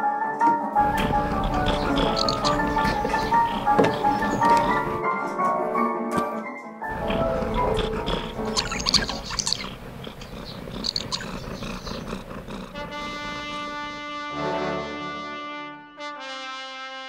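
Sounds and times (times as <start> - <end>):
orchestral music with brass chords: 12.9 - 17.0.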